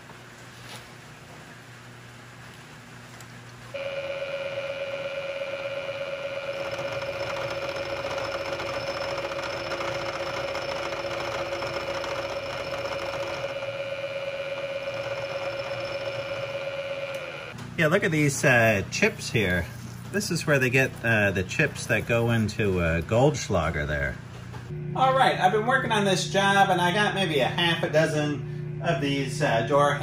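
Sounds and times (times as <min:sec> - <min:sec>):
milling machine whining: 0:03.8 - 0:17.6.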